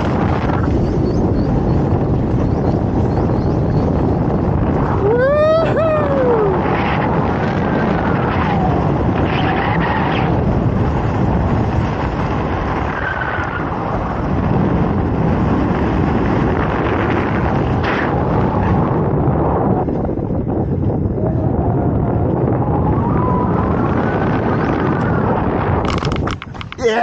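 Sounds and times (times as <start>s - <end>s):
wind rushing over microphone: 0.0s - 27.0s
person whooping: 5.0s - 6.7s.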